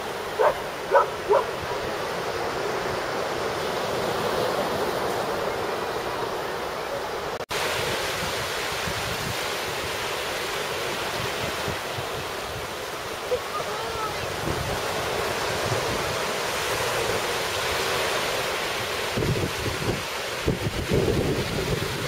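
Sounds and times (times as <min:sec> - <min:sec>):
surf washing on a beach: 0:00.0 - 0:22.0
wind on microphone: 0:07.6 - 0:10.2, 0:10.9 - 0:17.3, 0:19.0 - 0:22.0.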